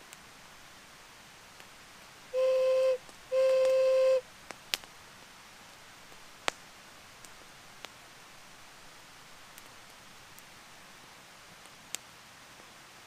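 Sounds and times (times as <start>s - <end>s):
ocarina note: 2.4s - 4.2s.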